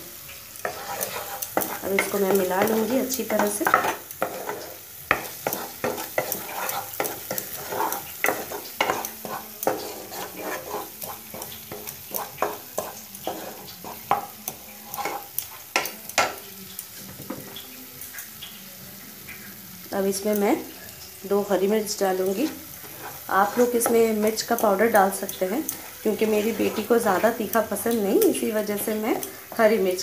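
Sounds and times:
paste sizzling in oil: 0.0 - 30.0
wooden spatula scraping pan: 0.6 - 15.7, 22.3 - 24.1, 25.7 - 27.4.

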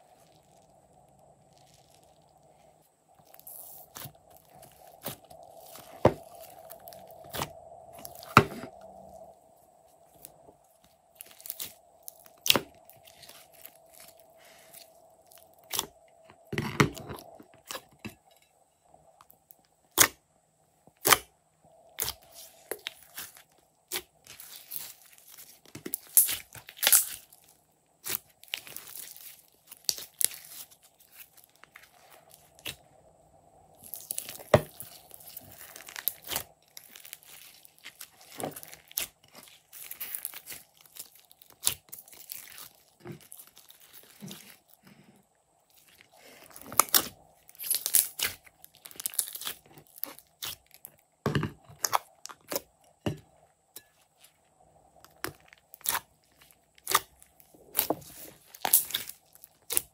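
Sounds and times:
slime squelching and crackling: 0.0 - 18.2, 21.0 - 33.1, 33.7 - 53.2, 53.8 - 59.9
slime popping: 46.7 - 50.6, 55.1 - 56.0, 56.8 - 59.9.

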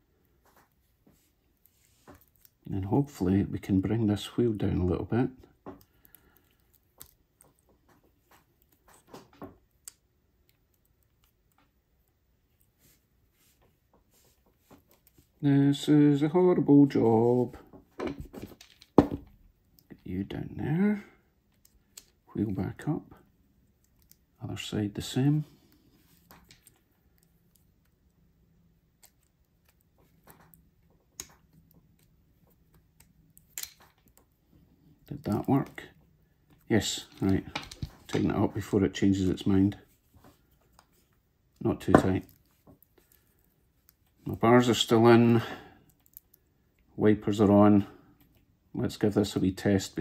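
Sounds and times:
faint clicks of small parts: 5.4 - 15.4, 17.7 - 20.1, 21.4 - 22.3, 23.2 - 24.4, 25.6 - 38.6, 40.1 - 46.9, 48.0 - 48.5
small clicks and taps of handwork: 29.0 - 34.4.

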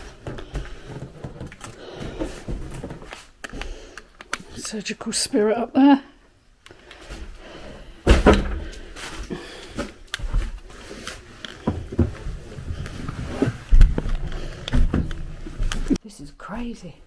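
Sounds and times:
heavy thumps: 11.6 - 15.8.

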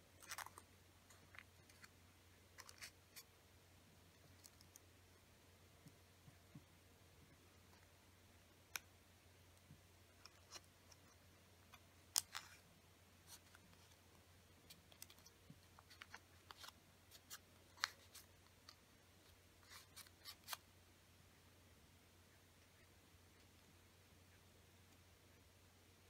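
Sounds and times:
paper folding crackles: 10.2 - 12.6, 14.6 - 18.8.

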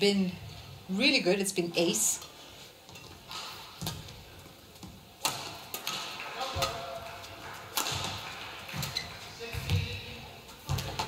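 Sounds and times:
racket hitting shuttlecock: 3.0 - 4.2, 4.8 - 11.0.

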